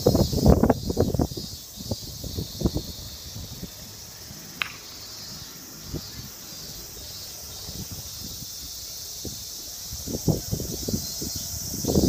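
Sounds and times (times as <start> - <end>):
high-pitched outdoor hiss: 0.0 - 12.0
sharp short click: 4.6 - 4.9.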